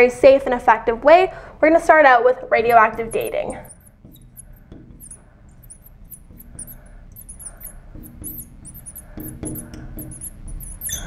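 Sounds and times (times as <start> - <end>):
marker squeaking on glass: 2.6 - 11.0.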